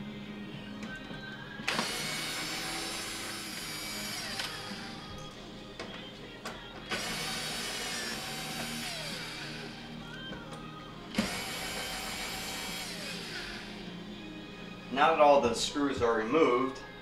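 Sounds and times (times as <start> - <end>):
soft background music: 0.0 - 17.0
cordless drill driving screws: 1.7 - 5.1, 6.9 - 9.9, 11.1 - 13.9
drill bit clicks: 3.3 - 4.7.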